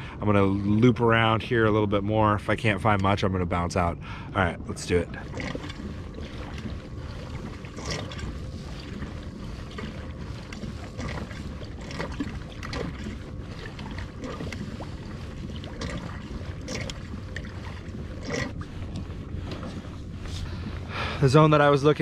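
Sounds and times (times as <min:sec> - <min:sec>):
water lapping along kayak hull: 0:00.0 - 0:22.0
wind buffeting microphone: 0:00.0 - 0:22.0
small water splashes: 0:04.8 - 0:22.0.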